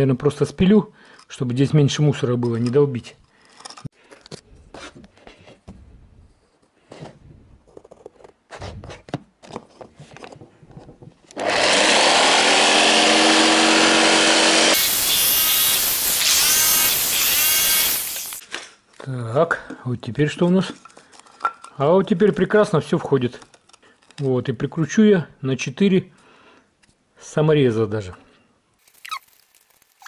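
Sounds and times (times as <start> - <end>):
jigsaw sawing through wood: 11.4 - 18.4.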